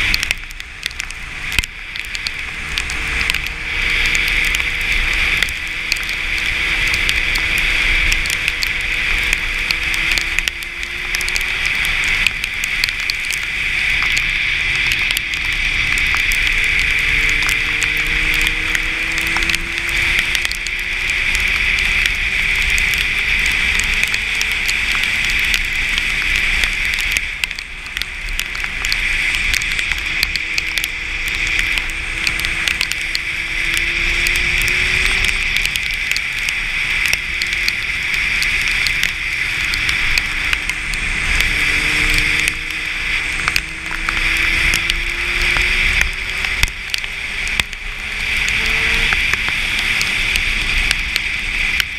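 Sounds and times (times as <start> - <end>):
motorcycle engine revving: 14.2 - 26.4, 30.0 - 38.0, 39.1 - 51.1.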